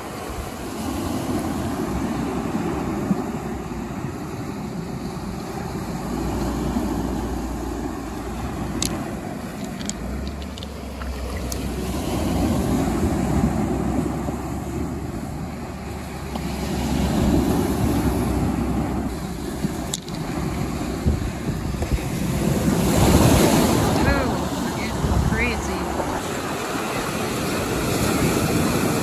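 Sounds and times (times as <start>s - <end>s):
waves breaking on cobble beach: 0.0s - 29.0s
wind buffeting microphone: 0.0s - 29.0s
small clicks: 9.6s - 11.7s.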